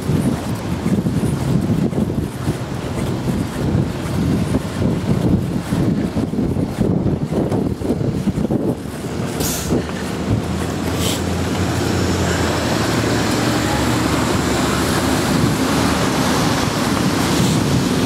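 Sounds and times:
bus engine humming: 0:00.0 - 0:18.0
street traffic: 0:00.0 - 0:18.0.

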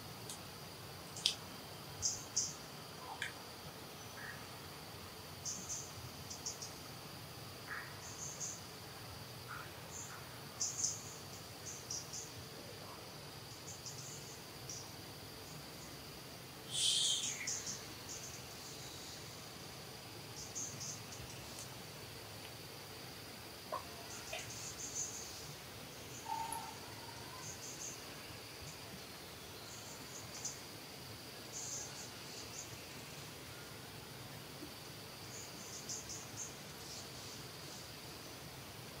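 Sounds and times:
high insect chirps: 0:00.0 - 0:39.0
insects droning: 0:00.0 - 0:39.0
loud hiss: 0:16.6 - 0:18.2.

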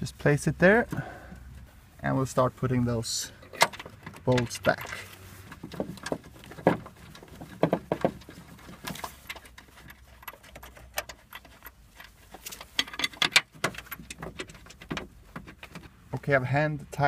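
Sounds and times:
metal bolts clinking: 0:03.4 - 0:16.0.

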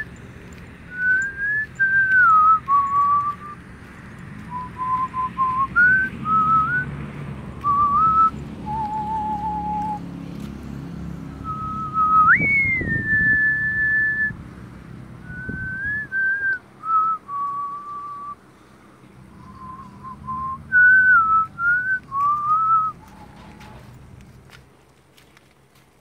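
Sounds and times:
person whistling a tune: 0:00.9 - 0:03.6, 0:04.4 - 0:06.9, 0:07.6 - 0:10.0, 0:11.4 - 0:14.4, 0:15.2 - 0:18.4, 0:19.4 - 0:23.2.

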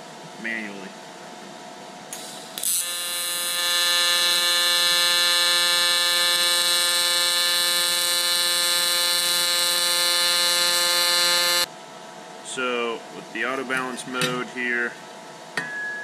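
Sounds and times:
welding arc buzzing: 0:02.1 - 0:11.7.

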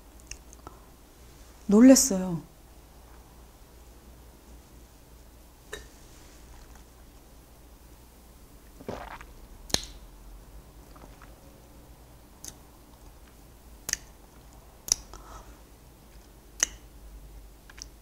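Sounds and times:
lip and tongue clicks: 0:00.2 - 0:00.7, 0:12.4 - 0:13.1, 0:13.8 - 0:15.2, 0:16.1 - 0:16.9, 0:17.7 - 0:18.0.

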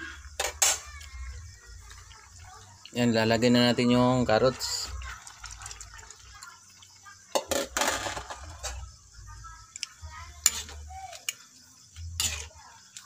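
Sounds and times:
utensil scraping in a wok: 0:05.2 - 0:09.0, 0:10.1 - 0:13.0.

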